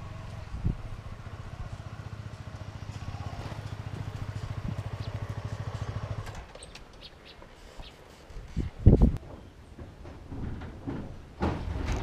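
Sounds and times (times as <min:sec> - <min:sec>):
motorcycle engine puttering: 0:00.0 - 0:07.1.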